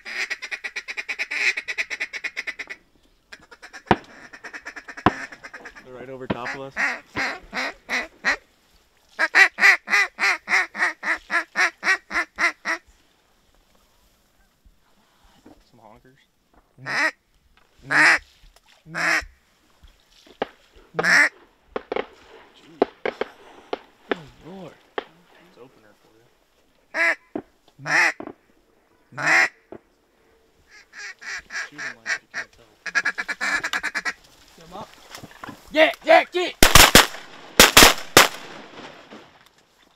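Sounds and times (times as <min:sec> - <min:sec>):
duck call quacks: 0:00.0 - 0:08.4, 0:09.2 - 0:12.8, 0:16.8 - 0:17.2, 0:17.9 - 0:18.2, 0:18.9 - 0:19.3, 0:21.0 - 0:21.3, 0:26.9 - 0:28.2, 0:29.2 - 0:29.6, 0:30.7 - 0:34.2.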